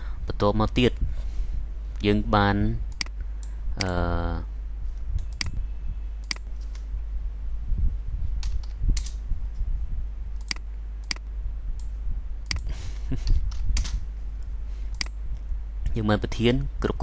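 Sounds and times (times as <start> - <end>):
low electrical hum: 0.0 - 17.0
computer mouse clicks: 2.9 - 3.9, 5.2 - 5.6, 8.4 - 9.2, 10.4 - 11.9, 12.5 - 14.0, 14.9 - 15.2.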